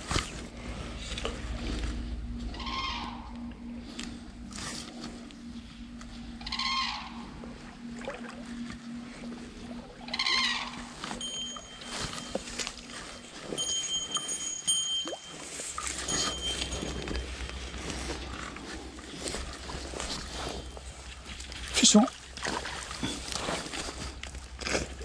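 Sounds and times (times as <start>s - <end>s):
faint steady hum: 0.0s - 25.0s
wavering animal calls: 0.6s - 14.5s, 15.2s - 21.1s.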